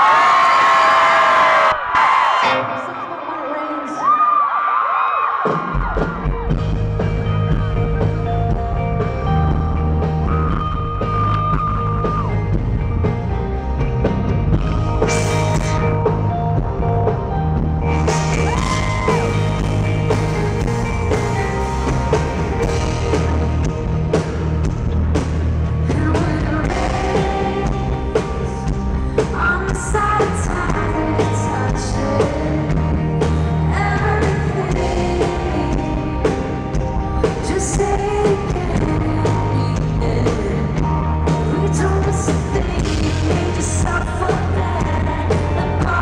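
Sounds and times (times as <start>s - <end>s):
rock band playing live: 5.4s - 46.0s
woman singing: 25.8s - 46.0s.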